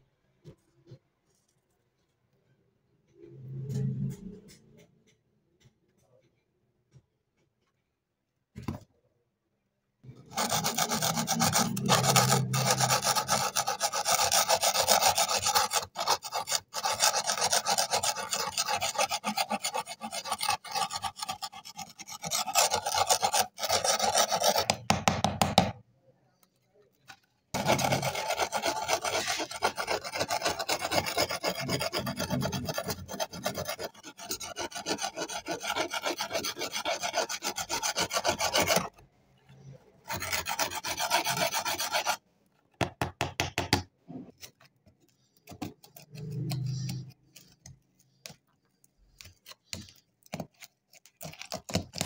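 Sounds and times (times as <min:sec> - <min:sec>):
metal scraper rasping off rust: 0:10.1 - 0:25.0, 0:27.6 - 0:39.0, 0:40.1 - 0:42.2, 0:45.4 - 0:47.8.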